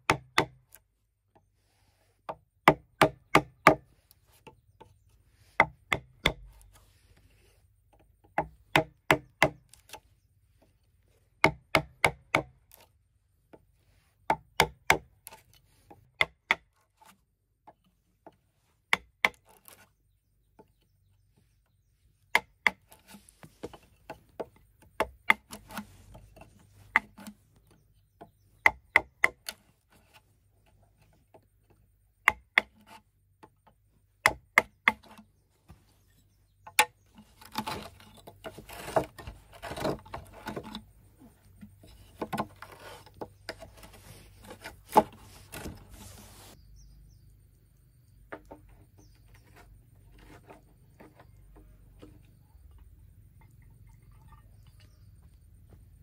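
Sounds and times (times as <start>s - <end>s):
bamboo being chopped: 0.0s - 0.8s, 2.6s - 3.9s, 5.6s - 6.6s, 8.2s - 10.0s, 11.4s - 12.9s, 14.3s - 15.4s, 16.1s - 16.7s, 18.9s - 19.8s, 22.3s - 25.8s, 26.9s - 27.4s, 28.6s - 29.6s, 32.2s - 33.5s, 34.2s - 35.2s, 41.9s - 46.0s.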